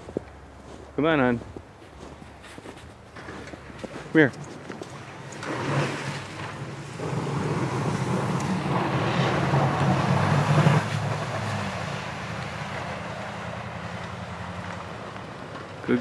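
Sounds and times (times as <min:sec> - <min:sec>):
plow blade scraping snow: 0:01.9 - 0:16.0
truck engine running under load: 0:06.2 - 0:16.0.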